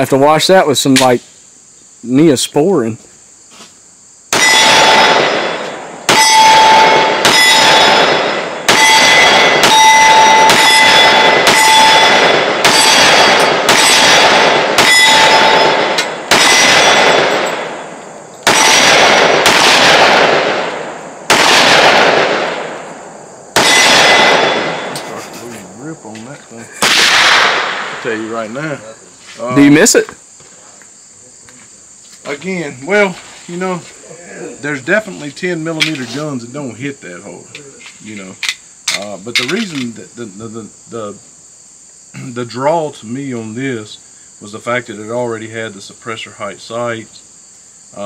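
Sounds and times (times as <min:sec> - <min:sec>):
pistol shots: 0:04.3 - 0:25.1, 0:26.8 - 0:28.1
metallic ringing tone: 0:06.1 - 0:14.1, 0:14.8 - 0:18.7.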